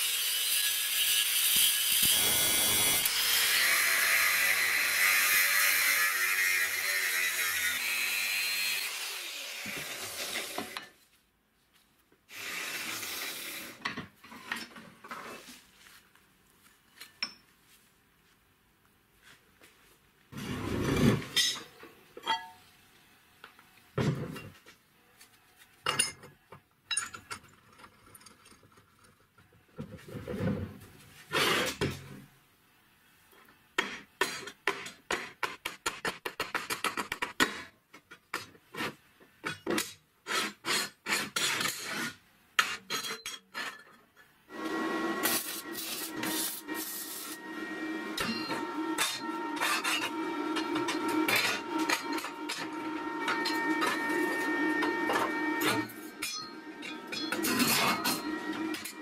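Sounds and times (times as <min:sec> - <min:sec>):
arc welder crackling: 0:44.6 - 0:47.5
steel tubes knocking and scraping: 0:48.2 - 0:59.0.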